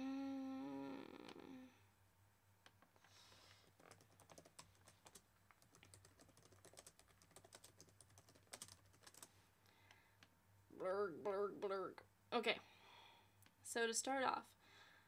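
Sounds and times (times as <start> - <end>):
faint low hum: 0.0 - 15.0
typing on computer keyboard: 3.7 - 9.3.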